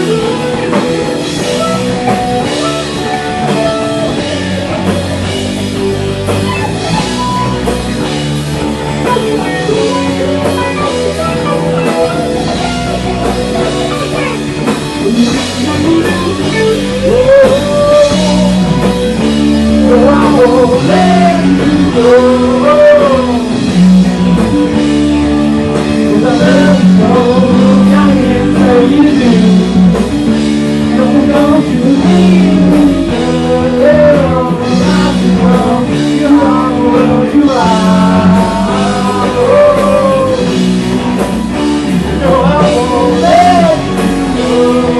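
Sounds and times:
bass guitar: 0.0 - 44.9
drum kit: 0.0 - 44.9
electric guitar: 0.0 - 44.9
man singing: 9.0 - 24.8, 25.8 - 40.8, 41.8 - 44.9.

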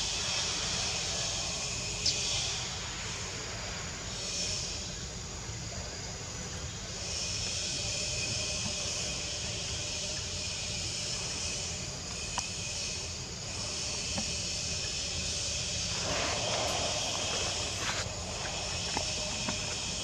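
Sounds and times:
high-pitched insect drone: 7.0 - 20.0.

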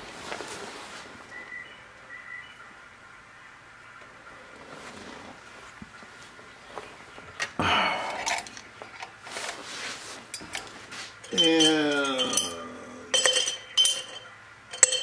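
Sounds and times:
rustle of handling: 0.0 - 1.5, 4.5 - 12.6
metal tools clinking on workbench: 7.9 - 9.1, 10.3 - 15.0
man humming: 11.3 - 13.2.

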